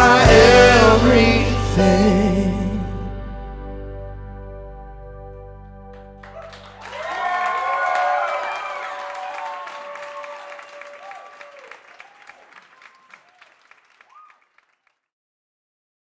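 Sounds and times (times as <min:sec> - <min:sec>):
audience applauding: 0:05.9 - 0:15.0.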